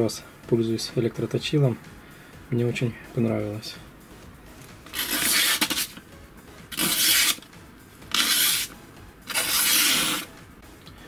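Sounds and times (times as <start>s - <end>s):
knife slicing paper: 4.9s - 6.0s, 6.7s - 7.5s, 8.1s - 8.7s, 9.3s - 10.3s.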